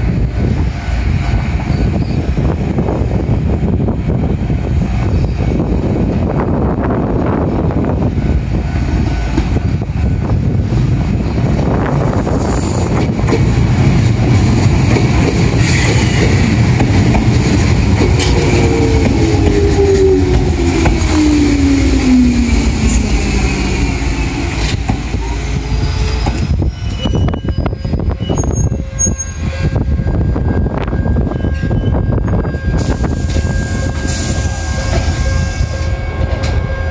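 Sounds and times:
train wheels rumbling on rail: 0:00.0 - 0:36.9
train brakes squealing: 0:01.6 - 0:02.4, 0:05.0 - 0:05.6, 0:15.5 - 0:16.5, 0:18.2 - 0:36.9
train motor whine: 0:14.5 - 0:36.9.

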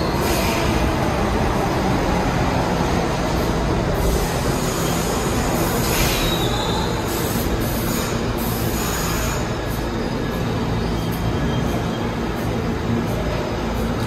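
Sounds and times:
subway train rumbling: 0:00.0 - 0:14.0
train wheel squeal: 0:04.4 - 0:12.7.

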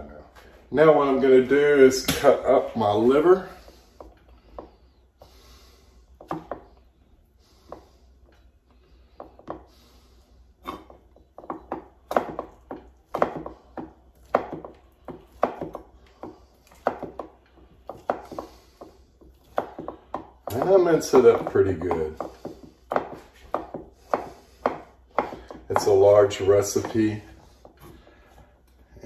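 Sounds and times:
knife chopping on cutting board: 0:06.2 - 0:06.7, 0:10.7 - 0:28.0.

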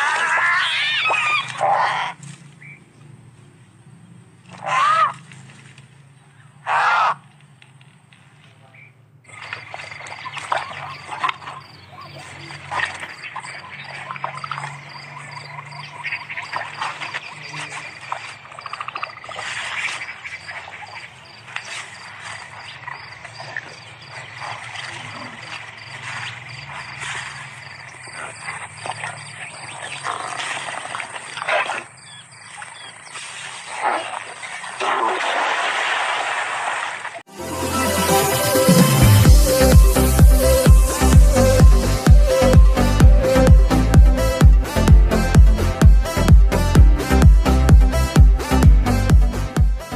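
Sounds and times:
frogs croaking: 0:06.3 - 0:07.3, 0:08.7 - 0:34.7
insects chirping: 0:09.2 - 0:33.3.

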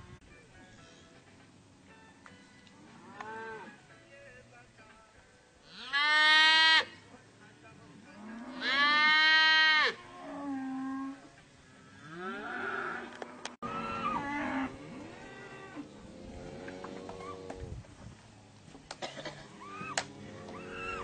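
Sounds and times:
cattle mooing: 0:08.2 - 0:17.7.

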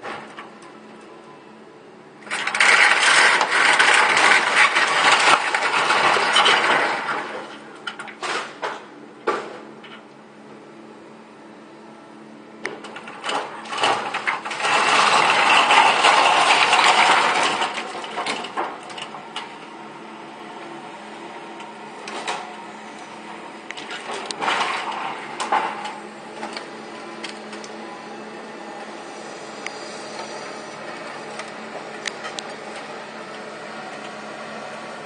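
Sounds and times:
excavator engine hum: 0:00.0 - 0:35.0
wood cracking: 0:02.3 - 0:09.5, 0:12.7 - 0:19.5.

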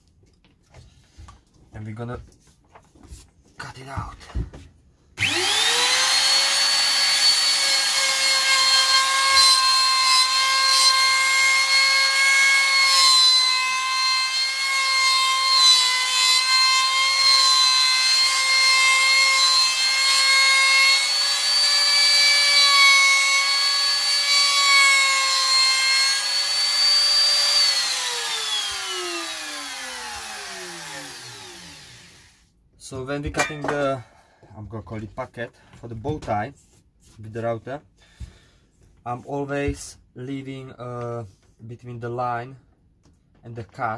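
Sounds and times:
router bit cutting wood: 0:05.2 - 0:32.4
router whining: 0:05.2 - 0:32.4.

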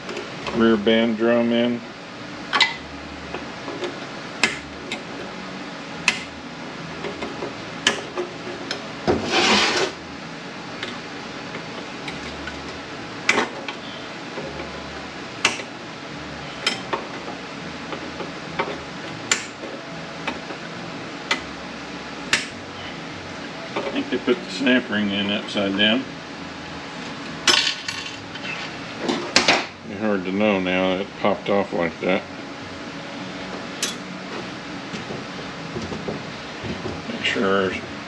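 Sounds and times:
metal scraping: 0:09.1 - 0:10.0.

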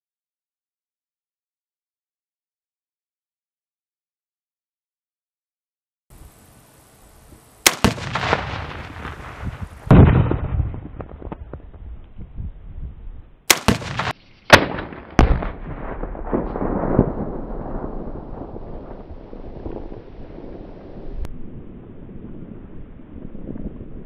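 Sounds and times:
explosive blasts with rolling rumble: 0:07.6 - 0:24.0.

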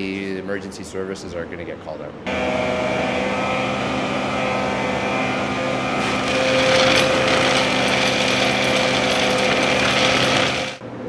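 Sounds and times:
industrial vacuum truck droning: 0:02.3 - 0:11.0
gravel rattling up suction pipe: 0:06.0 - 0:10.8.

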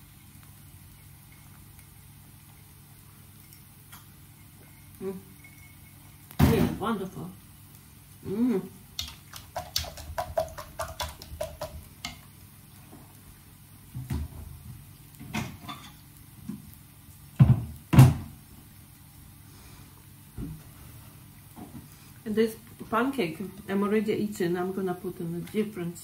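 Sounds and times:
light clicks and clinks: 0:03.4 - 0:06.0.

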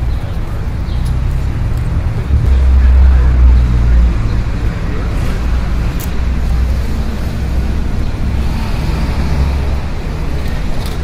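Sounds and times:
low rumble: 0:01.2 - 0:05.9.

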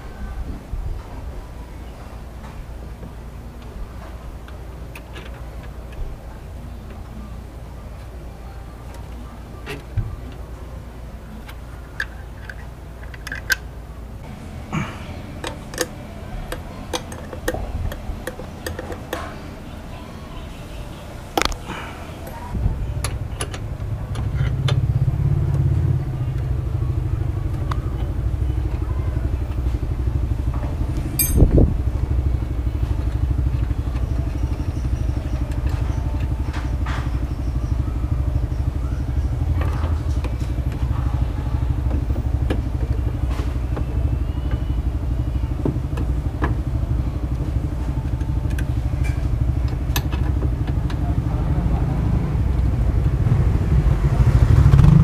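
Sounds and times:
engine idling: 0:02.8 - 0:55.0
plastic parts clicking and rattling: 0:11.4 - 0:13.7, 0:15.4 - 0:19.3.

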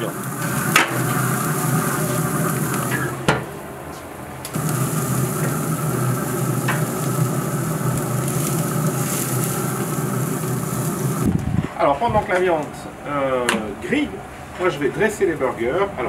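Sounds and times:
meat sizzling on grill: 0:00.0 - 0:03.3, 0:04.6 - 0:11.3
low steady hum: 0:00.0 - 0:11.4.

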